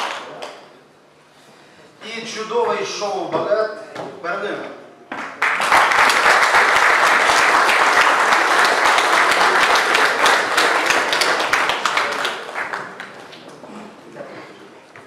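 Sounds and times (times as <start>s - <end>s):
audience applauding: 5.4s - 13.6s.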